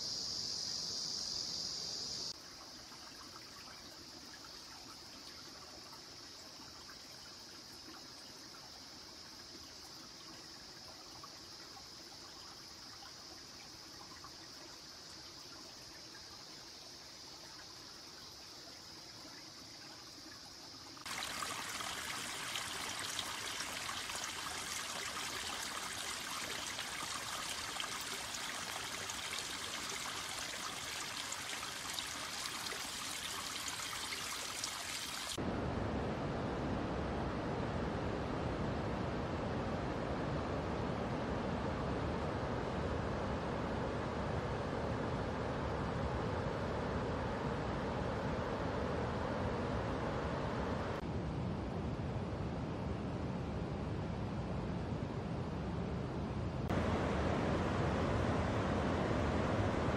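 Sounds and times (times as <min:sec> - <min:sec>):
high insect drone: 0:00.0 - 0:35.4
water trickling: 0:02.4 - 0:35.4
stream water rushing: 0:20.2 - 0:36.1, 0:56.7 - 0:59.9.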